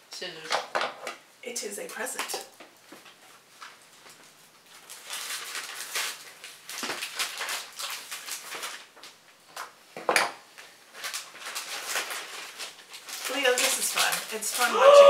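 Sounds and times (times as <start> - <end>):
paper rustling and crinkling: 2.4 - 9.7, 10.6 - 14.8.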